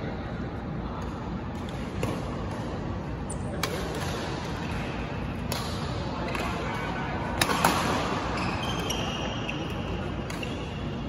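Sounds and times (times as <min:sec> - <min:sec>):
large hall background noise: 0:00.0 - 0:11.0
racket hitting shuttlecock: 0:03.5 - 0:06.5, 0:07.4 - 0:08.2.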